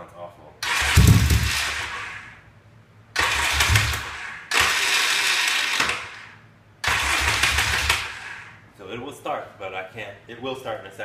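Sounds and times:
motorcycle electric starter grinding: 0.6s - 2.4s, 3.2s - 8.6s.

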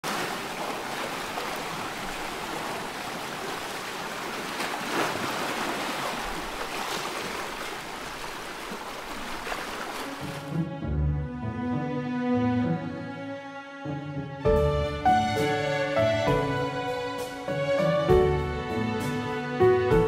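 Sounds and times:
water splash: 0.0s - 10.6s
sea water lapping: 0.0s - 10.7s
music: 10.1s - 20.0s.

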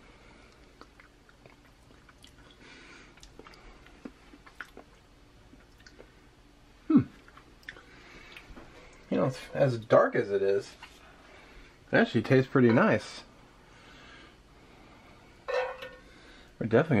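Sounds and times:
lip-smacking and mouth clicks: 0.5s - 2.6s, 3.2s - 6.1s, 7.2s - 9.0s.

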